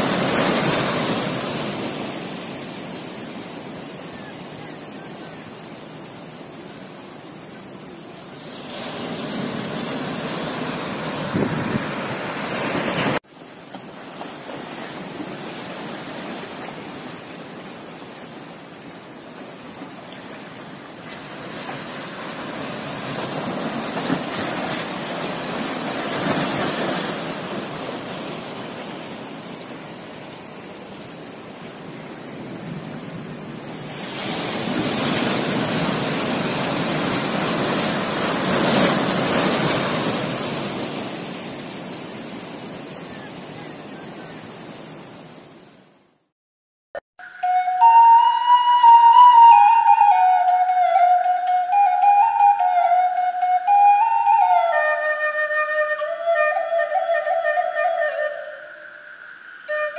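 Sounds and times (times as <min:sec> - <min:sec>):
surf breaking on beach: 0:00.0 - 0:05.6, 0:08.3 - 0:19.2, 0:20.4 - 0:45.7.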